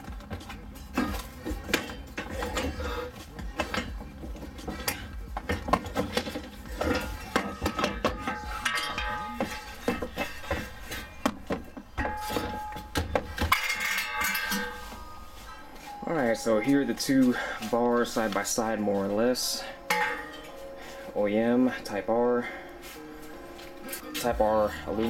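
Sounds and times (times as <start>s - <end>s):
metal bar knocking and scraping: 4.6s - 15.1s, 19.9s - 20.5s.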